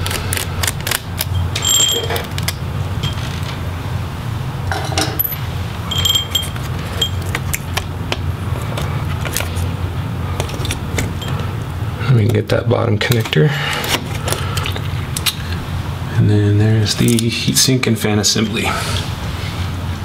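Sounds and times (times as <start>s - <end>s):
steady low hum: 0.0s - 20.0s
screwdriver clicks and metal clinks: 0.1s - 3.4s, 5.0s - 7.8s
bright metallic rings: 1.3s - 2.2s, 4.7s - 7.3s, 11.2s - 11.4s.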